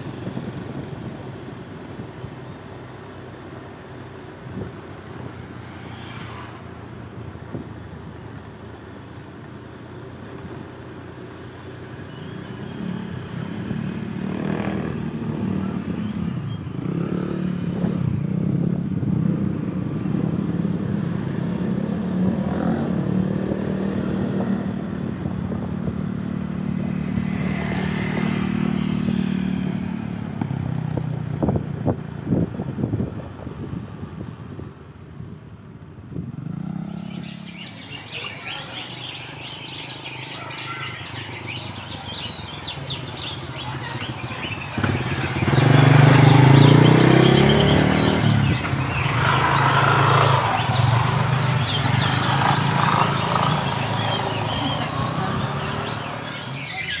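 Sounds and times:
birds chirping: 11.2 - 18.3, 36.3 - 57.0
motorcycle engine running: 41.4 - 56.7.

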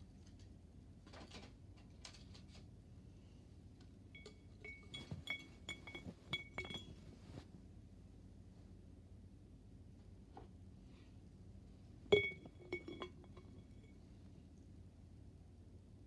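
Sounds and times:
light glass clinks: 4.2 - 7.1, 12.1 - 14.0
faint handling noise: 4.2 - 7.7.

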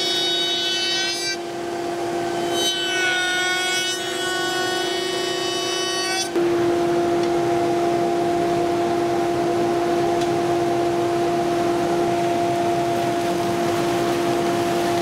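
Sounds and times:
dust extractor humming: 1.4 - 2.5, 6.3 - 15.0.

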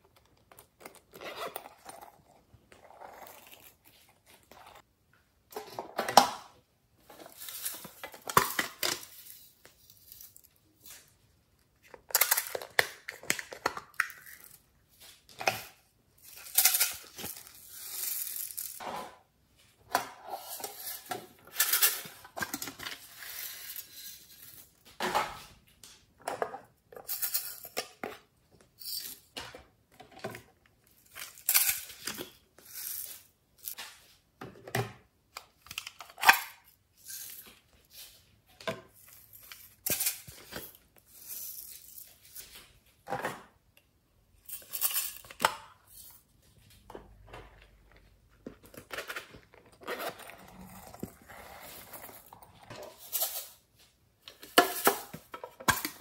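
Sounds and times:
pencil cases and sharpener clattering: 7.0 - 11.2, 11.8 - 19.1, 47.1 - 56.0.

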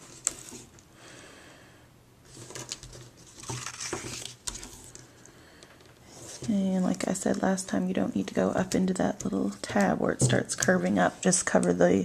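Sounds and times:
papery rustling and crackling: 2.3 - 5.0.

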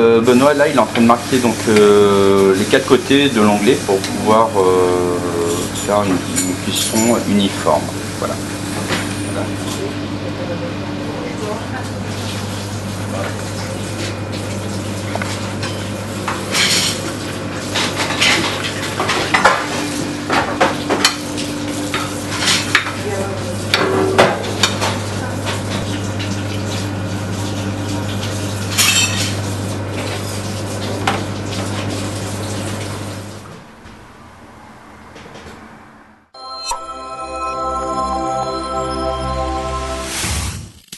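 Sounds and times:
pan and metal utensils clanking: 5.5 - 7.6, 16.4 - 21.3, 28.7 - 29.4.

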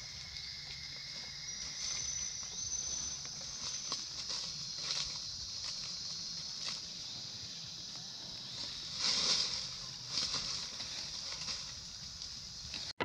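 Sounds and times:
insects droning: 0.0 - 13.0
monkey rustling while eating: 1.6 - 6.9.

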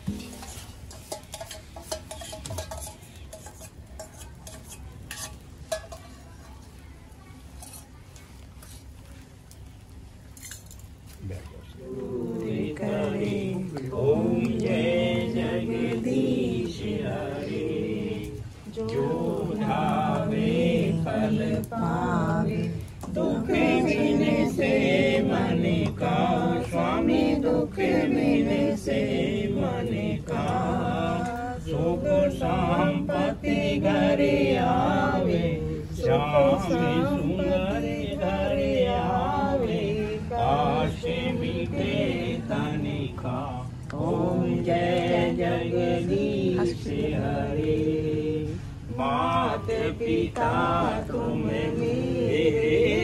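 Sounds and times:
voices chanting mantras: 11.2 - 53.0.

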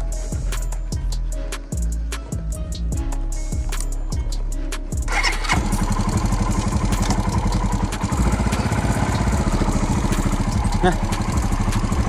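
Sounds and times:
engine running steadily: 5.0 - 12.0.

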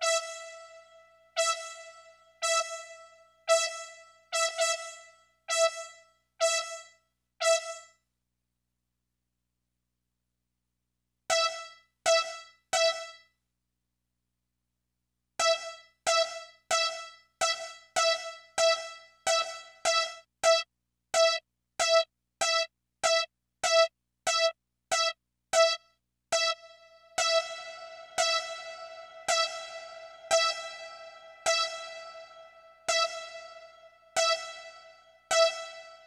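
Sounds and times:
synthesized keyboard note repeating: 26.4 - 36.0.

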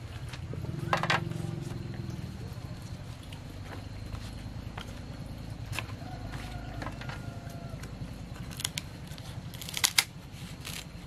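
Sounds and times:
leaves rustling and crackling: 8.4 - 11.0.

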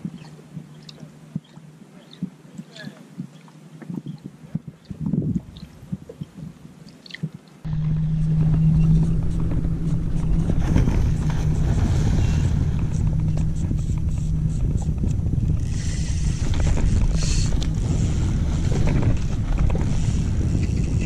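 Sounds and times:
wind buffeting microphone: 3.2 - 21.0
low hum: 7.6 - 21.0.

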